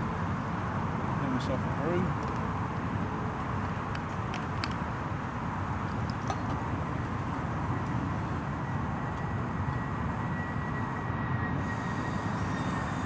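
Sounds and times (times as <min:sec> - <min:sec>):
motorway traffic rumble: 0:00.0 - 0:13.0.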